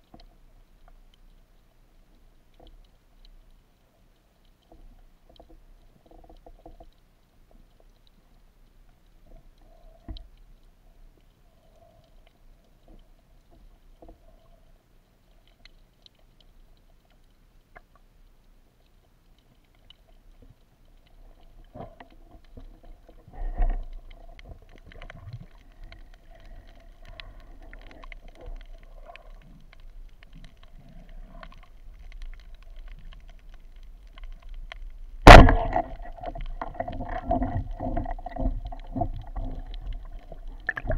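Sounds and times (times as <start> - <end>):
underwater water noise: 0.0 - 40.9
sharp loud knock: 35.3 - 35.7.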